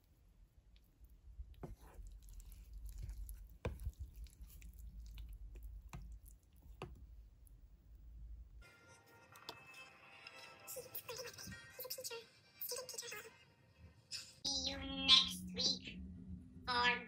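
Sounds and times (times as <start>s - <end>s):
spoon stirring porridge: 0.8s - 7.2s
low rumble: 14.8s - 17.0s.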